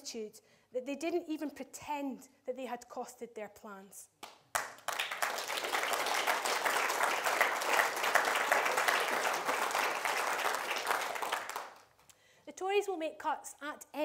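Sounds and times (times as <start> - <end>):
audience applauding: 4.5 - 11.9.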